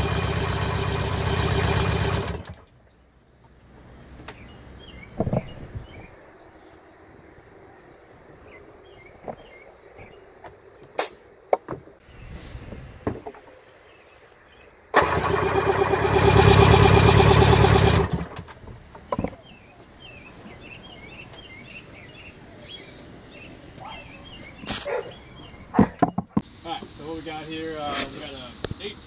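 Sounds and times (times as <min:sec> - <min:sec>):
electric starter cranking engine: 0:00.0 - 0:02.7, 0:14.9 - 0:18.5.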